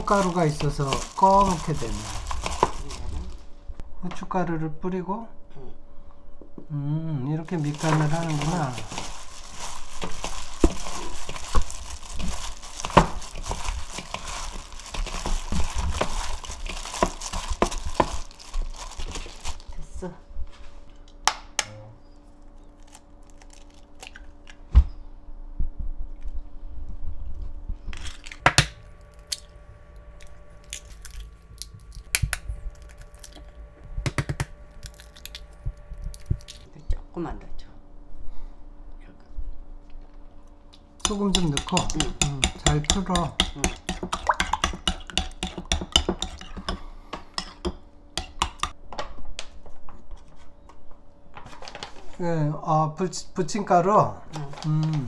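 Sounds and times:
eggshells cracking: 0:07.6 - 0:19.8, 0:28.0 - 0:29.6, 0:30.2 - 0:33.5, 0:34.1 - 0:36.7
spoon clinking against bowl: 0:41.0 - 0:46.7.

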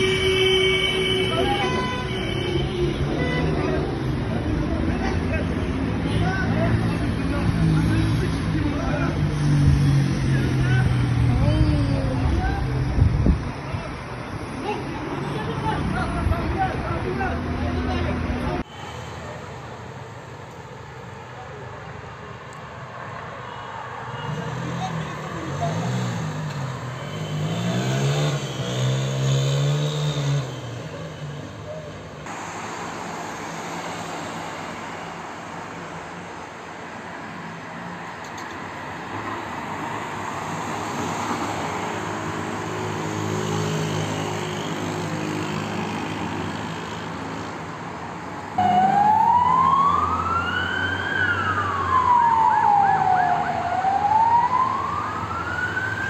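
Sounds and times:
street noise: 0:00.0 - 0:56.0
emergency siren wailing: 0:48.6 - 0:56.0.

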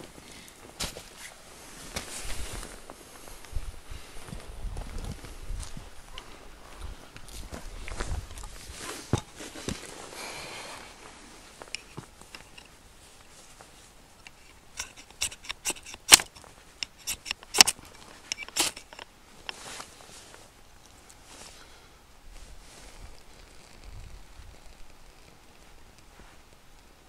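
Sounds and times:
short rustle: 0:00.1 - 0:26.7
sharp clicks and knocks: 0:14.2 - 0:19.1.

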